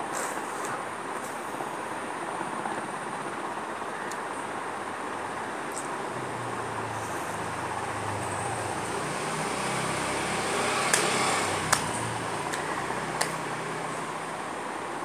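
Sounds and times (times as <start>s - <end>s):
background hum and hiss: 0.0s - 15.0s.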